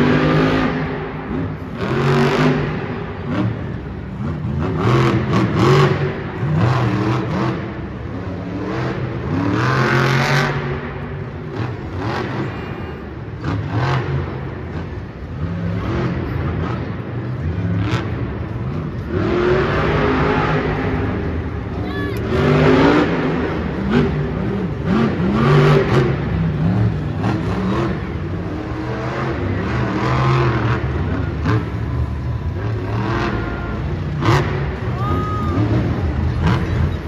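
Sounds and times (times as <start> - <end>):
monster truck engine revving: 0.0 - 37.0.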